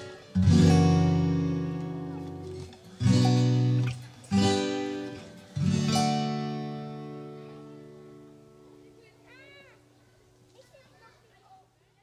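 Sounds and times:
acoustic guitar chords: 0:00.0 - 0:09.2.

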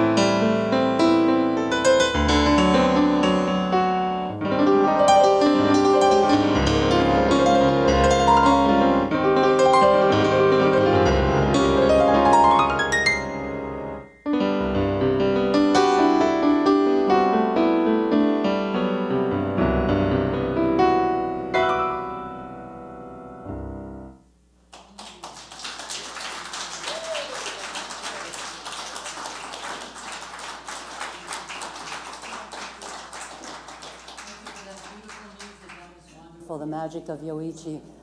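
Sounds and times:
solo piano piece: 0:00.0 - 0:24.2
audience applauding: 0:24.7 - 0:36.0.

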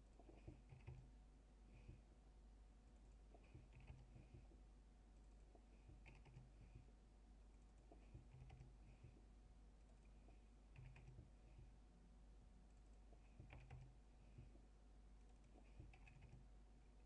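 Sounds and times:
low steady hum: 0:00.0 - 0:17.0
keyboard and mouse clicks: 0:00.1 - 0:01.1, 0:03.0 - 0:04.5, 0:05.2 - 0:06.9, 0:07.5 - 0:09.2, 0:09.8 - 0:11.7, 0:12.7 - 0:14.6, 0:15.2 - 0:16.5.

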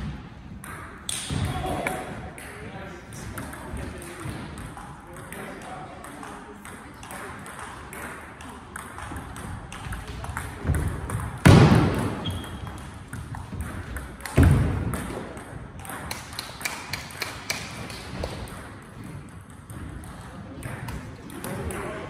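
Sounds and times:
table tennis ball clicking: 0:12.4 - 0:18.8.

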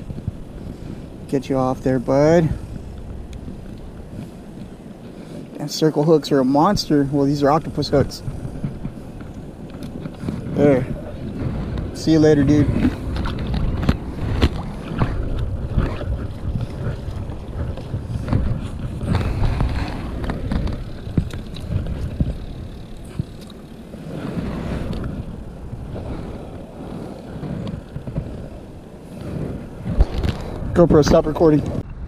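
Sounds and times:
low rumbling: 0:00.0 - 0:32.0
knocks and rustles of gear: 0:07.6 - 0:31.8.

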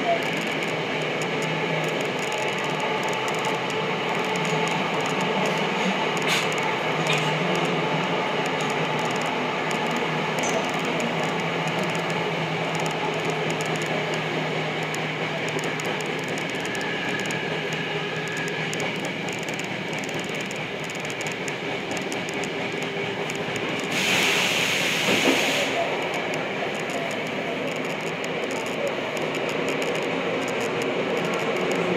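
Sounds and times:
subway train rumble and rail noise: 0:00.0 - 0:31.9.

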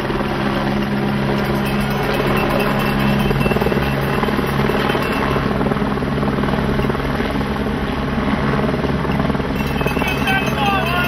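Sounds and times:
low hum: 0:00.0 - 0:08.4
helicopter rotor chopping: 0:00.0 - 0:11.0.

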